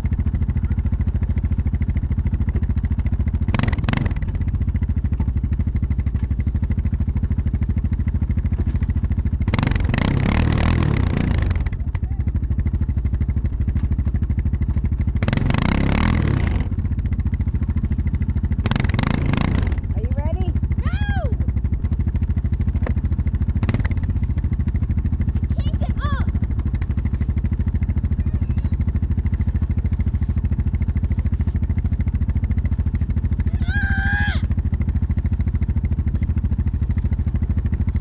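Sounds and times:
atv engine running: 0.0s - 38.0s.

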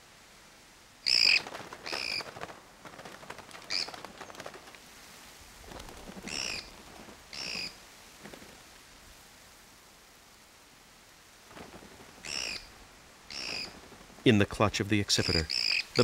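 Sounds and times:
bird distress screams: 1.0s - 2.3s, 3.7s - 4.0s, 6.2s - 6.7s, 7.3s - 7.8s, 12.2s - 12.7s, 13.3s - 13.8s, 15.2s - 16.0s
wings flapping: 1.0s - 8.9s, 11.3s - 14.6s
rustling: 1.2s - 9.4s, 11.2s - 14.3s.

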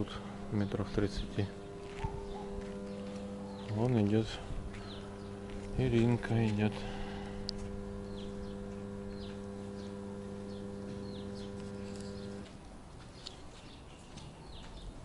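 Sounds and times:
steady low hum: 0.0s - 12.9s
small birds chirping: 0.0s - 15.0s.

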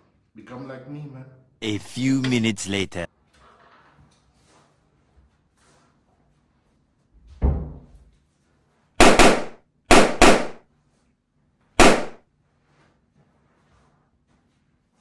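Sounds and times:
balloons popping: 11.8s - 12.2s.

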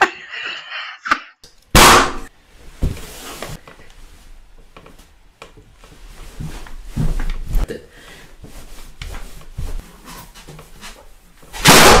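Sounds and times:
balloon bursting: 1.7s - 2.3s, 11.6s - 12.0s.

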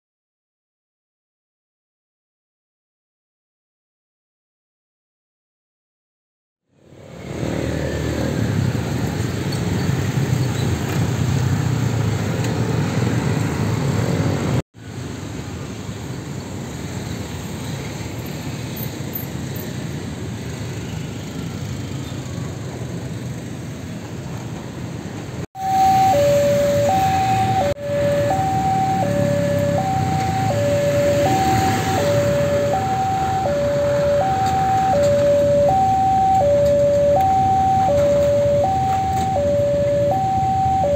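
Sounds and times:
motorcycles and cars passing: 6.8s - 40.9s
two-tone crossing alarm: 25.6s - 40.9s.

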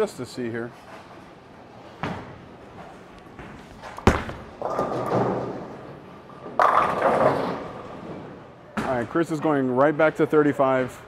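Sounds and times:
bowling pins clattering: 3.5s - 8.3s
ball cracking into pins: 3.8s - 5.6s
bowling ball thumping on lane: 3.9s - 5.7s.

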